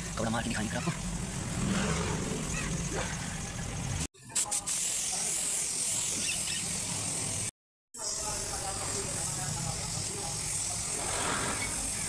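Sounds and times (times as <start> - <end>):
cloth rubbing on tyre: 10.9 - 12.0.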